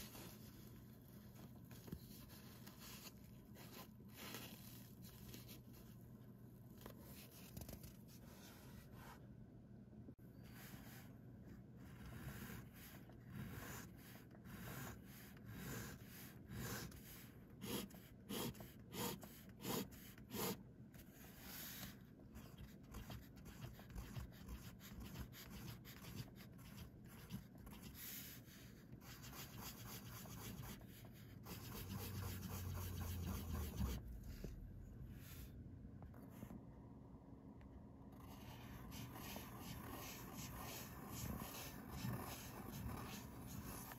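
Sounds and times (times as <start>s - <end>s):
fountain pen nib scratching paper: 11.8s - 20.6s, 21.2s - 34.1s, 38.2s - 43.9s.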